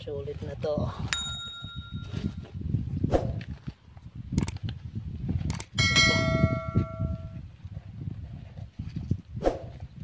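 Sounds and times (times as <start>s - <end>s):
metal object clinking and ringing: 1.1s - 2.5s, 5.8s - 7.3s
sharp clicks: 4.3s - 4.7s, 5.5s - 5.8s.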